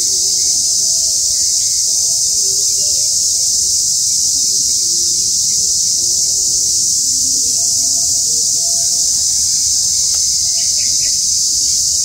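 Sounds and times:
insect chorus drone: 0:00.0 - 0:12.0.

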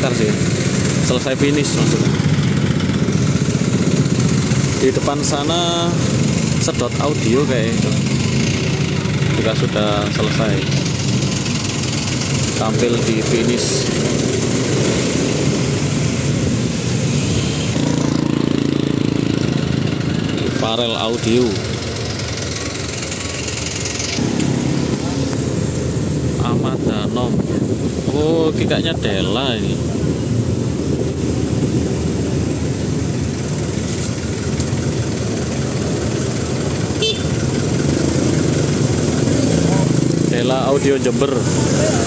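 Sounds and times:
engine idling with rapid pulse: 0:00.0 - 0:14.8, 0:17.4 - 0:24.8
traffic engines running: 0:00.0 - 0:42.0.

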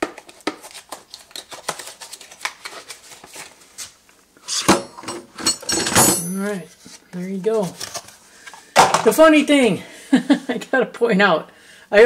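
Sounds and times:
cardboard rustle and scrape: 0:06.7 - 0:08.2.

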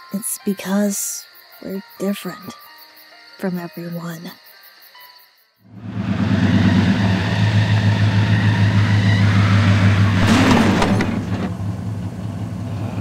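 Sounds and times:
truck engine humming: 0:05.7 - 0:13.0.

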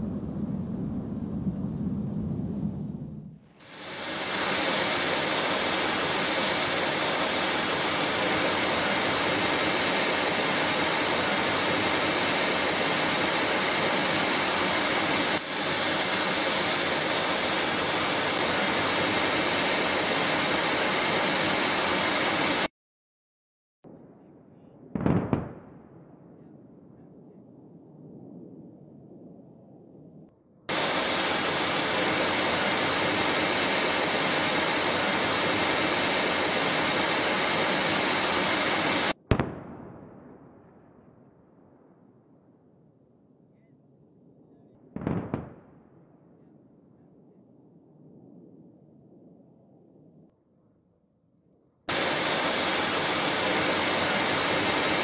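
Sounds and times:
jet aircraft rushing noise: 0:00.0 - 0:22.7, 0:30.7 - 0:39.2, 0:51.9 - 0:55.0.

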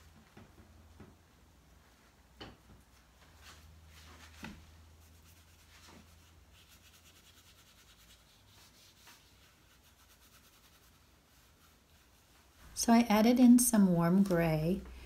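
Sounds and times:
paintbrush scrubbing on paper: 0:03.9 - 0:13.4.

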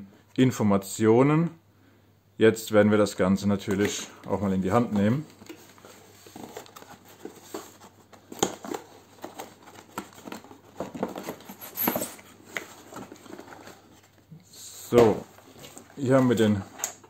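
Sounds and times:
cardboard rustling: 0:03.7 - 0:14.3, 0:15.0 - 0:17.0.

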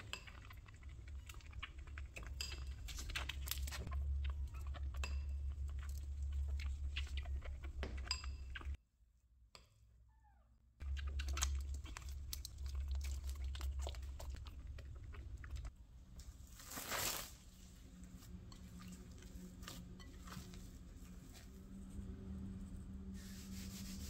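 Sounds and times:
plastic wrap crinkling: 0:16.3 - 0:18.1.

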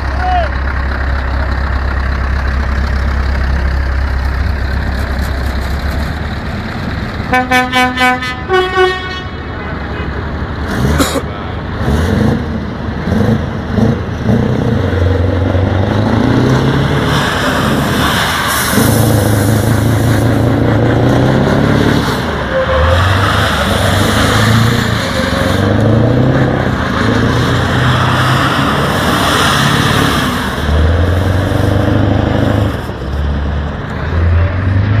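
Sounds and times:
diesel truck engine revving: 0:10.2 - 0:35.0.

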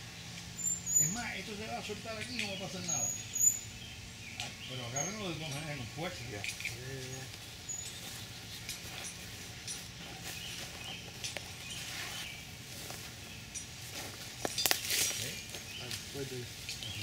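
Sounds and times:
steady low hum: 0:00.0 - 0:17.0
faint rustles and clicks: 0:05.2 - 0:17.0.

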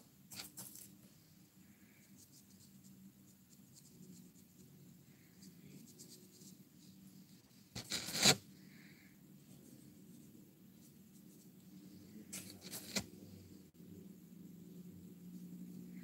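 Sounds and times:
faint low hum: 0:00.0 - 0:16.0
hands scratching a surface: 0:07.8 - 0:08.4
louder scrape: 0:07.8 - 0:08.4.

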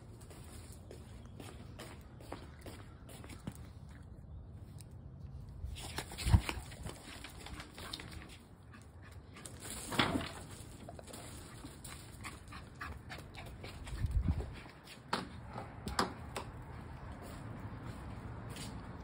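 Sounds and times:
footsteps on gravel and stone: 0:00.0 - 0:04.1.

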